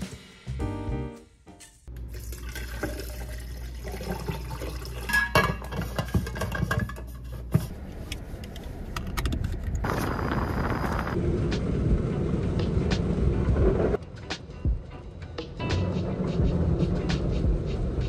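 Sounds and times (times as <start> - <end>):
liquid pouring over ice: 2.1 - 5.1.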